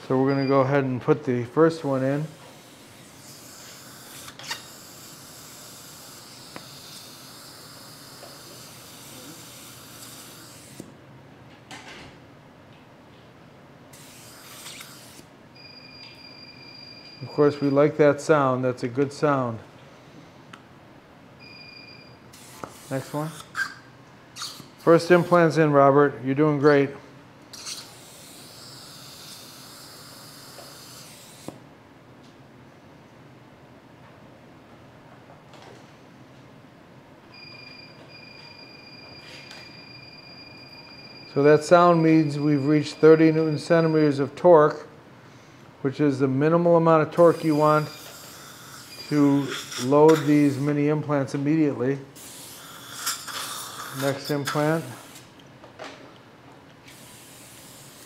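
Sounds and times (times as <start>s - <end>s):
dental handpiece whine: 1.9s - 10.9s, 13.9s - 17.8s, 21.4s - 25.6s, 27.5s - 31.6s, 37.3s - 44.2s, 47.2s - 50.7s, 52.2s - 55.3s
suction hiss: 2.4s - 10.9s, 22.3s - 23.7s, 27.6s - 31.6s, 47.2s - 50.7s, 52.2s - 55.3s, 56.9s - 58.0s.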